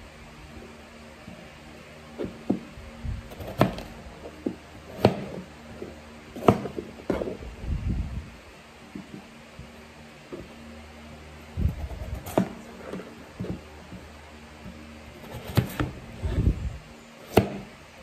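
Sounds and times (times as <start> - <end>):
knife slicing potatoes: 3.3 - 3.9, 11.7 - 13.6, 15.2 - 16.0, 17.2 - 17.7.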